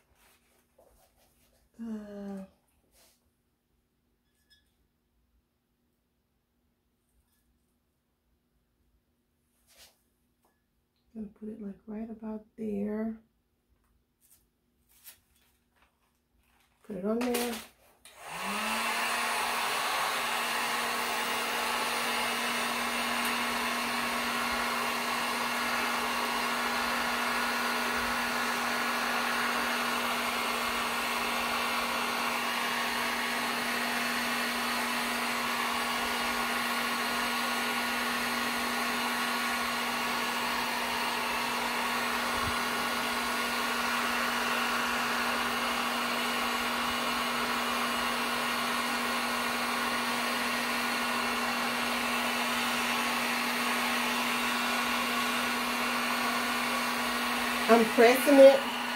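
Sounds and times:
heat gun blowing air: 16.9 - 58.9.

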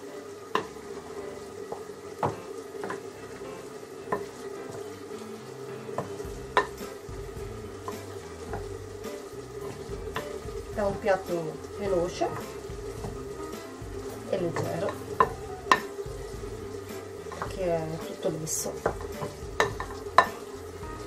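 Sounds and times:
spoon stirring mushy mixture: 11.6 - 18.2, 18.8 - 21.0.

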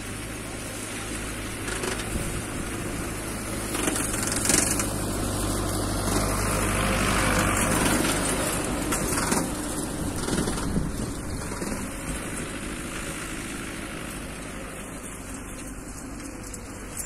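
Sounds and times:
diesel tractor engine: 0.0 - 17.0
rotary mower cutting grass: 0.0 - 17.0
sharp clatter: 1.4 - 14.1.

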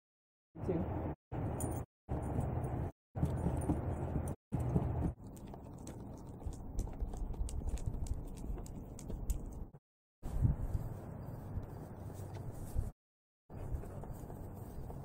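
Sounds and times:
dog's toenails clicking on concrete: 4.6 - 9.7.

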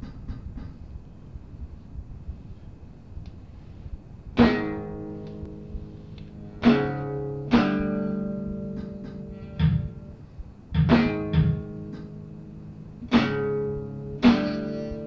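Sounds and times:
faint guitar plucks: 4.4 - 15.0
guitar chords ringing: 4.4 - 15.0.

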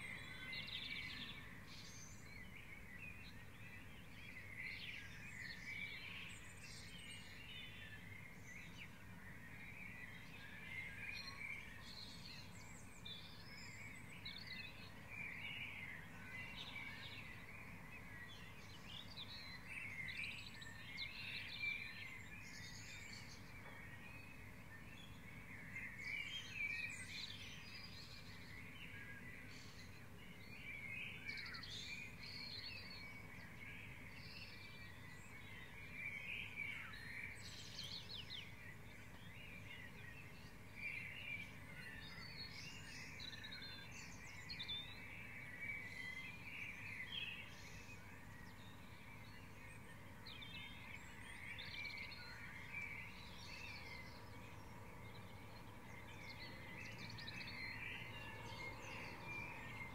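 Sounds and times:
birds singing and calling: 0.0 - 59.9.

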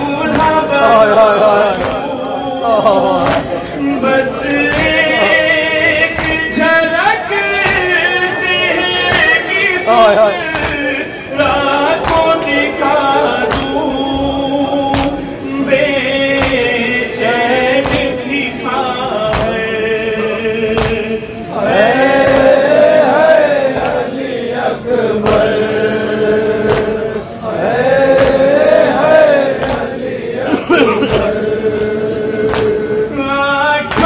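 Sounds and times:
man chanting into microphone: 0.0 - 34.0
chest-beating thumps: 17.8 - 18.3, 19.2 - 19.8.

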